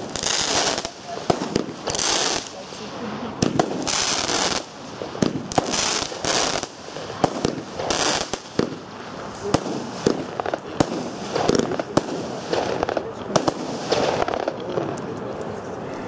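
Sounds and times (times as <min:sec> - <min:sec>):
firework bangs: 0:00.0 - 0:15.4.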